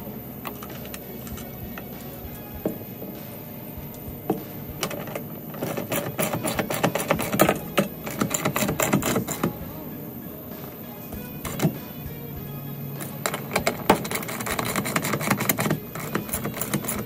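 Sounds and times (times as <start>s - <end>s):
ratchet wrench clicking: 4.8s - 9.6s, 11.4s - 11.8s, 13.0s - 17.0s.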